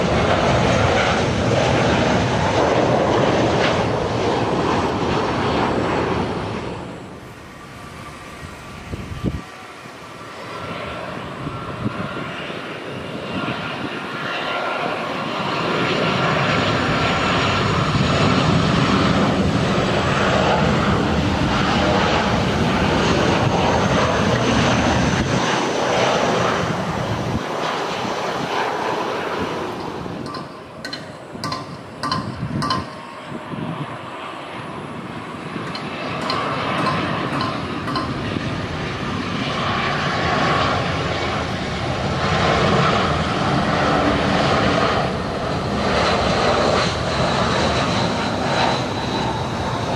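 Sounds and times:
jet engines passing overhead: 0:00.0 - 0:49.9
sharp clicks: 0:30.2 - 0:33.0.

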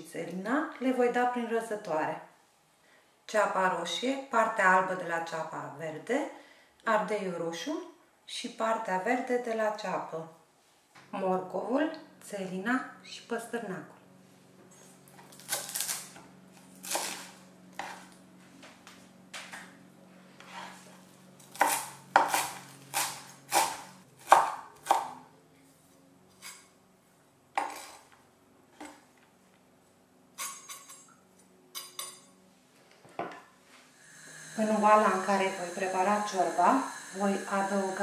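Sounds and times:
knife chopping on wooden board: 0:16.8 - 0:18.0, 0:21.5 - 0:25.1, 0:27.6 - 0:28.0.

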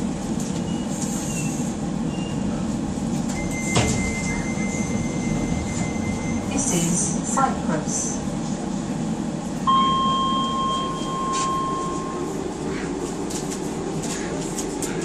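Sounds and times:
train hum: 0:00.0 - 0:15.0
steady electronic beep: 0:03.4 - 0:06.6, 0:09.7 - 0:12.4.

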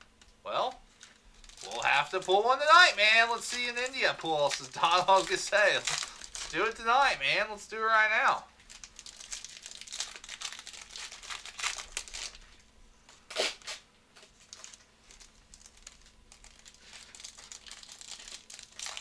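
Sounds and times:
foil wrapper crinkling: 0:00.9 - 0:06.9, 0:08.6 - 0:12.7, 0:13.3 - 0:19.0
foil pack tearing open: 0:01.4 - 0:06.6, 0:08.7 - 0:12.4, 0:14.4 - 0:19.0.

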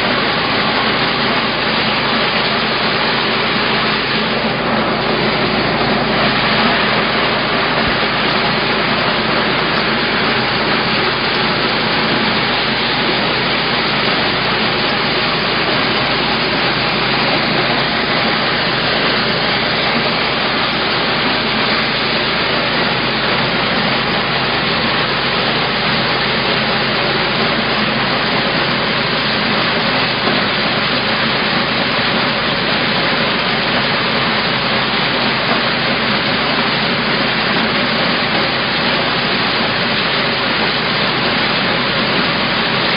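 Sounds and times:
engine-driven maize thresher running: 0:00.0 - 0:42.9.

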